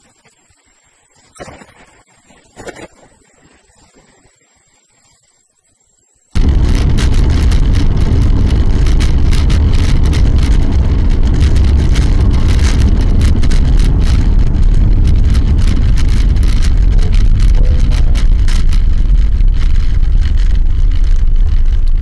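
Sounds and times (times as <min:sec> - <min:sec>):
crackling distortion: 0:06.4 - 0:22.0
road and engine rumble inside car: 0:06.4 - 0:22.0.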